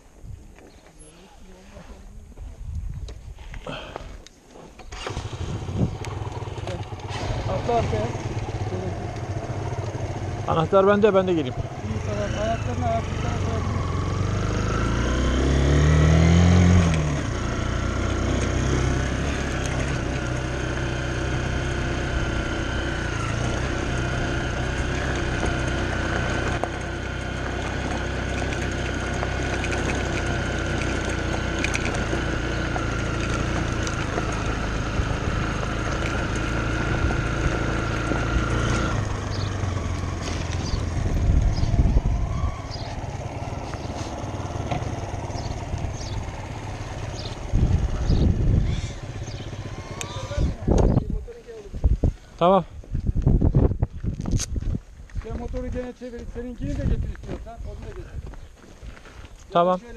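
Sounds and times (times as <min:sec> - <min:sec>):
dirt bike engine revving: 0:04.9 - 0:51.1.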